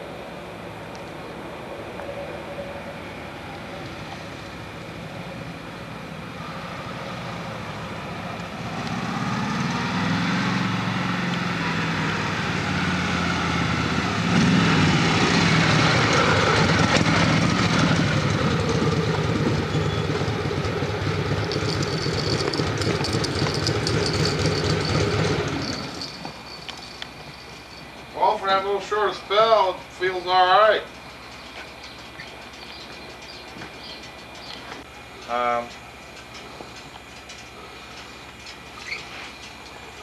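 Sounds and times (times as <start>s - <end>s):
motorcycle engine passing by: 6.4s - 26.5s.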